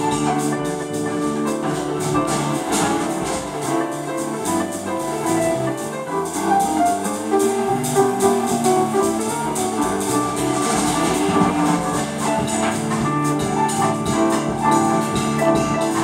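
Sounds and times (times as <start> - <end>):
guitar: 0.0 - 16.0
piano: 0.0 - 16.0
electric bass: 7.1 - 15.9.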